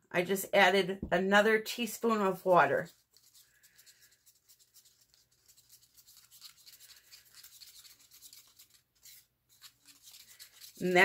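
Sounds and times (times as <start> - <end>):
stick scraping paper cup: 2.8 - 11.0.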